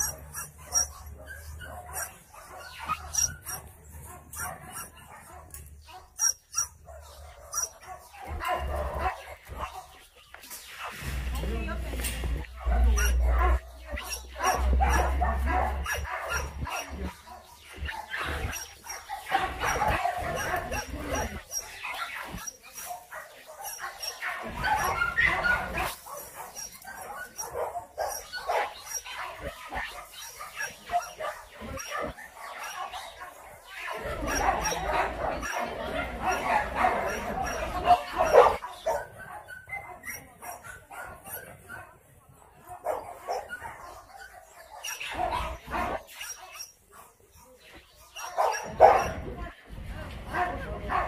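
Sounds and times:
dogs barking: 0:00.0 - 0:51.0.

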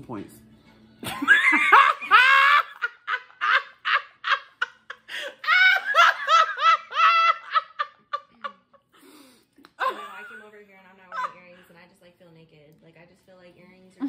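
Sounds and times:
woman laughing hard: 0:01.0 - 0:08.8.

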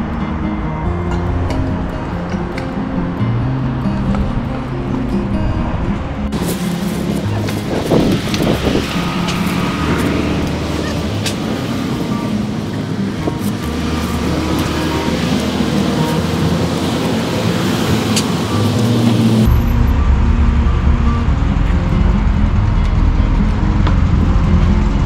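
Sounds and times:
background music with low notes: 0:00.0 - 0:25.0
road traffic drone: 0:00.0 - 0:25.0
tent fabric crinkling: 0:06.3 - 0:09.6.

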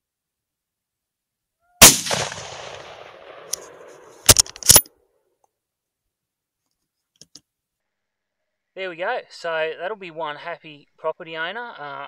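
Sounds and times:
rifle shot echoing: 0:01.8 - 0:04.8
rifle bolt clacks: 0:03.5 - 0:04.9.

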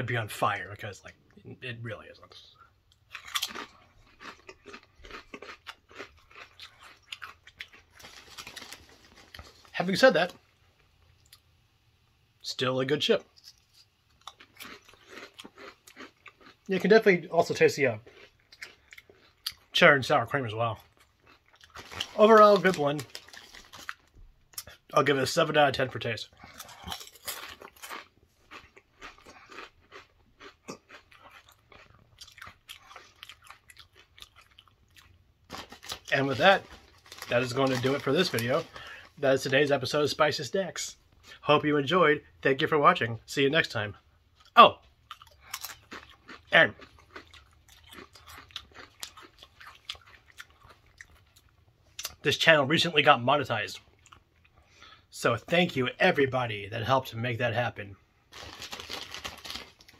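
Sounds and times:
person chewing crunchy chips: 0:02.3 - 0:11.5, 0:13.3 - 0:24.9, 0:25.8 - 0:39.7, 0:44.3 - 0:52.2, 0:53.9 - 0:55.0, 0:58.1 - 0:59.9.

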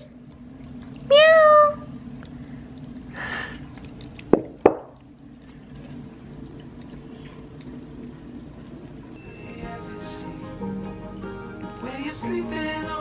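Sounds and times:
faint steady hum: 0:00.0 - 0:13.0
bowl knocking on floor: 0:04.4 - 0:04.9.

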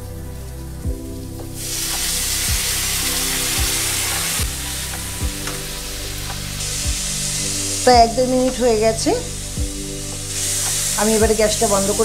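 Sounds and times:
background music with low beat: 0:00.0 - 0:12.0
hot oil sizzling loudly: 0:00.1 - 0:12.0.

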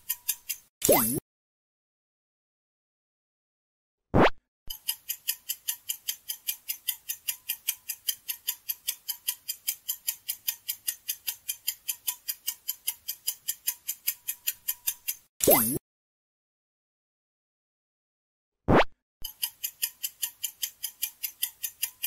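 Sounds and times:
clock ticking: 0:00.0 - 0:01.2, 0:04.7 - 0:15.8, 0:19.2 - 0:22.0.

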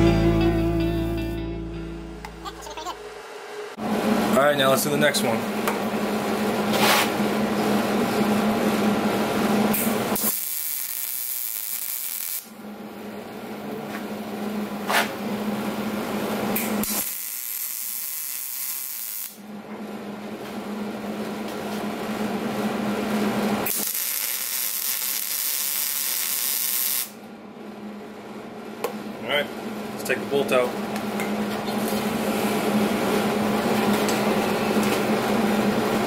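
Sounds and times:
welding arc crackling hiss: 0:09.8 - 0:12.5, 0:16.6 - 0:19.4, 0:23.6 - 0:27.2.

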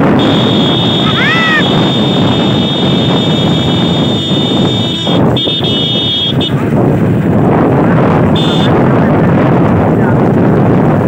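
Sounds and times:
motorcycle road noise: 0:00.0 - 0:11.0
wind rushing over microphone: 0:00.0 - 0:11.0
shrill steady tone: 0:00.2 - 0:06.4.

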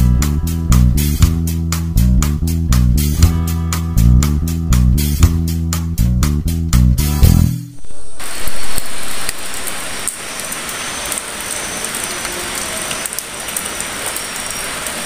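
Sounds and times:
guitar music: 0:00.0 - 0:07.9
thin high whine: 0:07.1 - 0:12.4
steady hiss: 0:07.8 - 0:15.0.

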